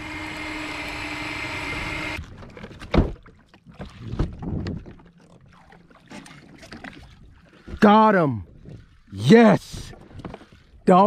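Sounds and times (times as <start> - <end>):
water lapping against hull: 2.2 - 11.0.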